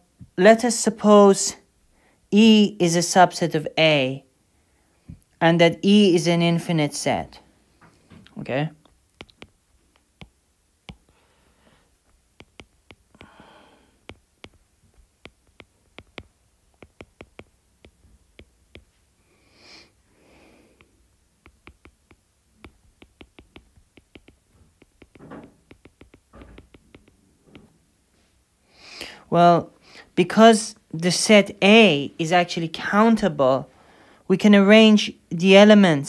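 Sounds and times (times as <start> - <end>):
soft breaths: 1.8 - 2.3, 10.9 - 12.2, 12.9 - 16.3, 18.7 - 21.2, 26.5 - 30.2, 33.7 - 34.3
stylus tapping on glass screen: 9.1 - 11.2, 12.0 - 19.0, 20.8 - 27.8.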